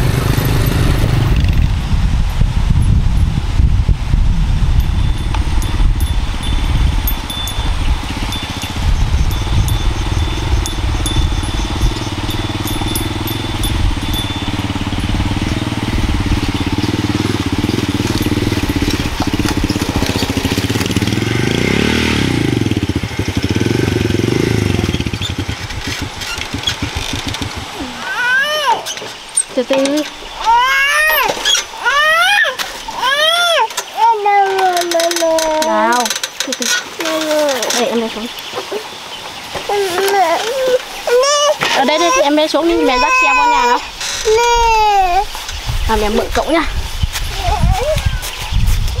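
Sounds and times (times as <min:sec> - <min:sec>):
small motorbike engine running: 0:00.0 - 0:02.1, 0:04.7 - 0:28.9, 0:34.5 - 0:38.6.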